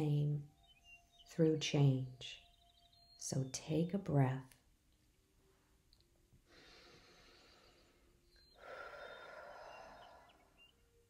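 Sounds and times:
woman breathing: 6.4 - 10.8.

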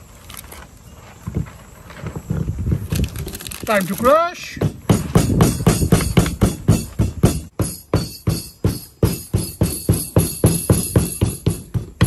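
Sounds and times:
pestle pounding in wooden mortar: 4.4 - 12.0.

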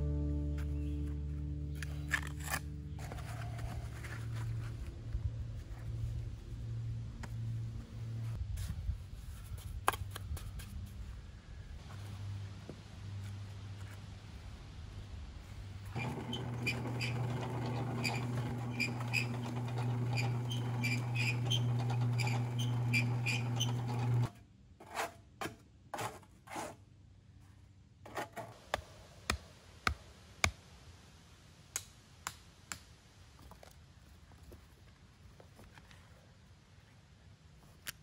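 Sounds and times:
cement mixer running: 15.9 - 24.3.

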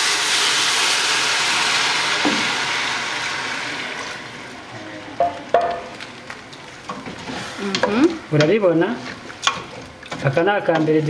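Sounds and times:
loud sizzling in hot pan: 0.0 - 4.6.

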